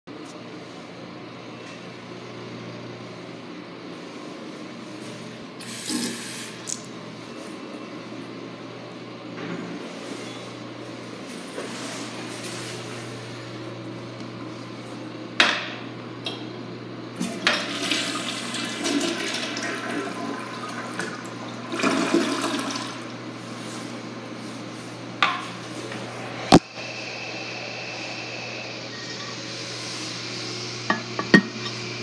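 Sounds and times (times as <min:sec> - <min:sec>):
toilet flushing: 0:05.6 - 0:06.9, 0:17.2 - 0:23.2.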